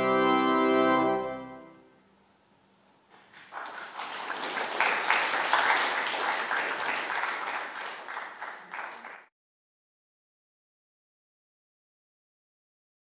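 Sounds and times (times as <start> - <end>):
congregation applauding: 3.1 - 9.3.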